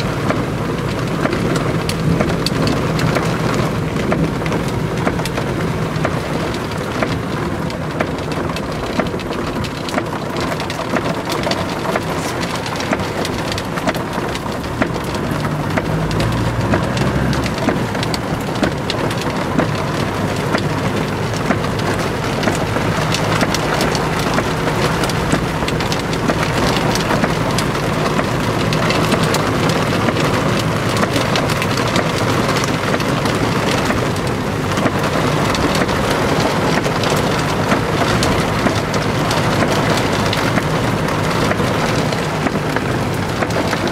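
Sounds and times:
car engine humming: 0.0 - 43.9
heavy rain drumming on car roof: 0.0 - 43.9
low rumble: 12.1 - 20.0.

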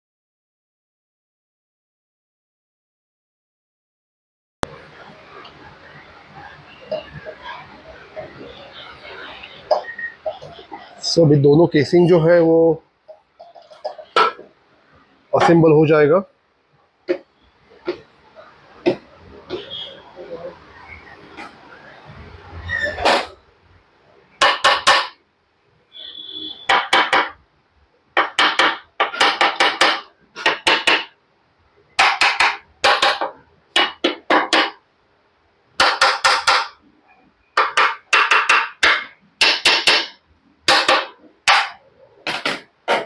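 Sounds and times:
hammer striking steel tooling: 35.8 - 36.8, 37.6 - 43.0.

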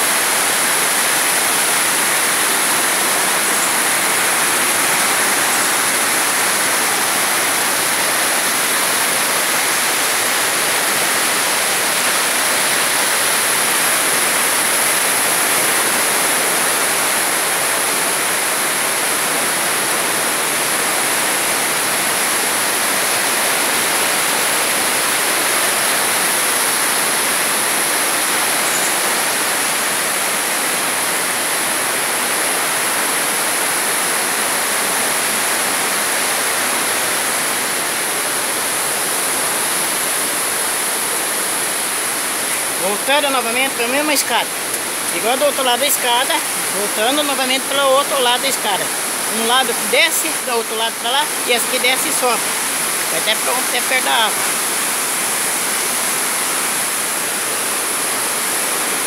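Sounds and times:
water dripping and spraying from rock: 0.0 - 42.8.

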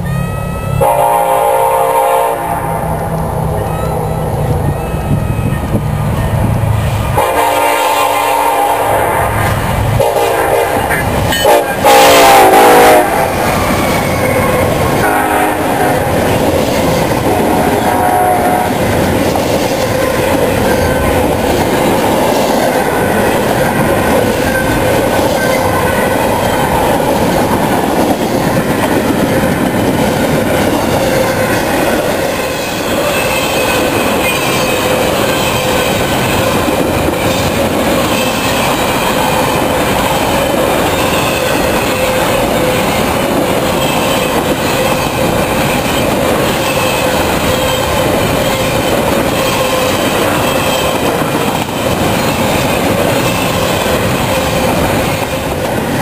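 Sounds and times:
locomotive horn blasts: 0.0 - 4.4, 7.1 - 13.4, 14.4 - 16.3, 17.2 - 18.9
train cars rumbling and clacking: 0.0 - 56.0.

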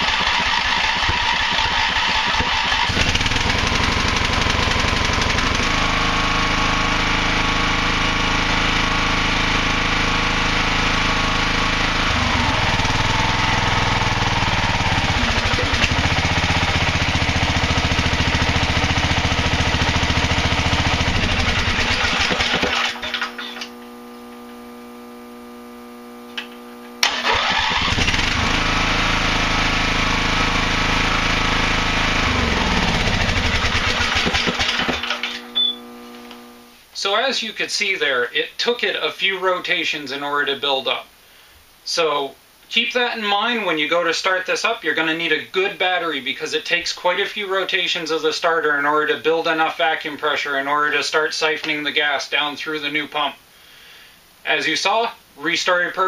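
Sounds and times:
small engine running: 0.0 - 36.7.

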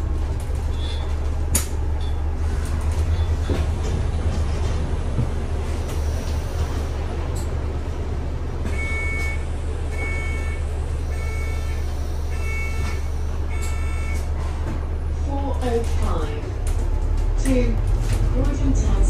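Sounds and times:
bus engine hum and road noise: 0.0 - 19.0
electronic warning beep: 8.7 - 14.3.

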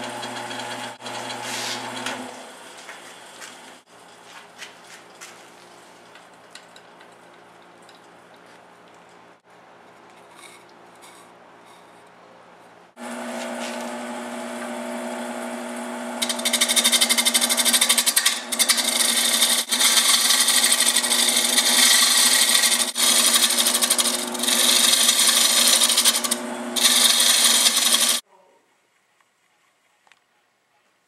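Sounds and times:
turning tool cutting wood: 0.0 - 2.4, 13.0 - 28.2
wood lathe humming: 0.0 - 2.5, 13.0 - 28.2.

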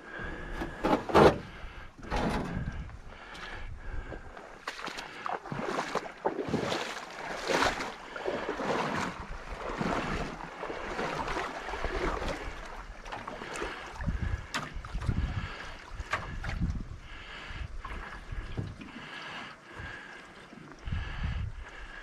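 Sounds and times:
wind rumble on microphone: 0.2 - 4.5, 8.7 - 18.9, 20.8 - 22.0
paddle strokes splashing water: 3.2 - 21.0.

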